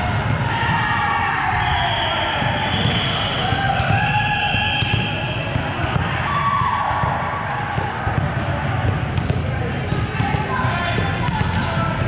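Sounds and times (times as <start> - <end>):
balls bouncing on gym floor: 2.4 - 12.0.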